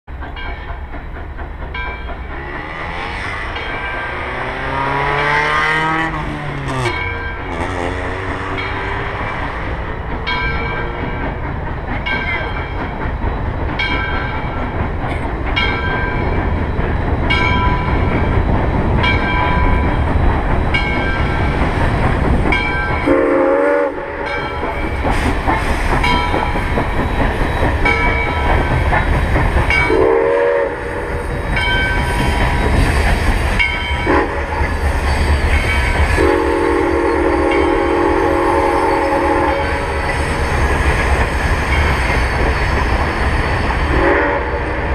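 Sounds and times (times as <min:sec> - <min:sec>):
steam locomotive rumble: 0:00.0 - 0:44.9
locomotive bell ringing: 0:00.2 - 0:44.9
steam whistle blasts: 0:23.0 - 0:24.2, 0:29.9 - 0:31.2, 0:34.0 - 0:34.6, 0:36.2 - 0:40.0, 0:43.9 - 0:44.9.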